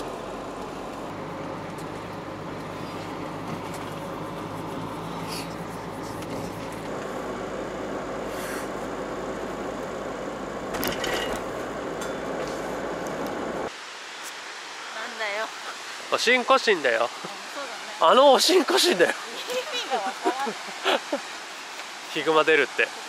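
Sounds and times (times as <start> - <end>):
van road and engine noise: 0.0 - 14.9
rustling or clattering: 10.7 - 12.9.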